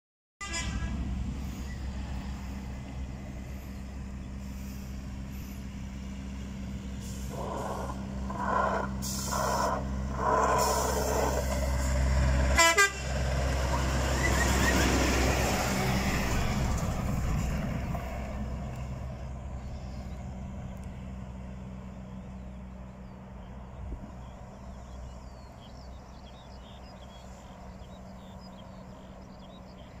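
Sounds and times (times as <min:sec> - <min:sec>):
truck horn toots: 0:00.4 - 0:01.1, 0:12.5 - 0:13.2
diesel truck passing: 0:00.5 - 0:30.0.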